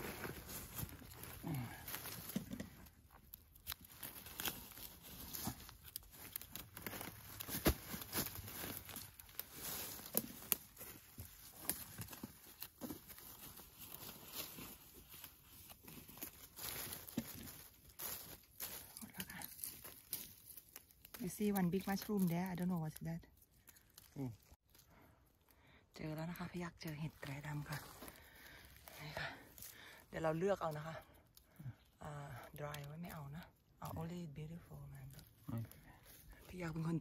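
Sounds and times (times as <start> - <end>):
dry leaves rustling: 0.0 - 25.0, 26.4 - 31.5
twigs snapping: 0.3 - 24.9, 26.8 - 30.0.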